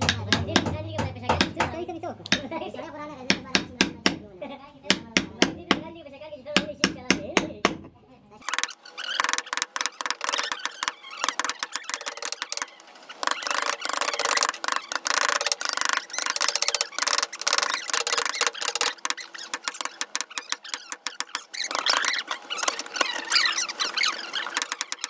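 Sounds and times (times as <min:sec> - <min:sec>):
mallet tapping chisel into wood: 0:00.0 - 0:02.4, 0:03.3 - 0:04.2, 0:04.9 - 0:05.8, 0:06.6 - 0:07.8.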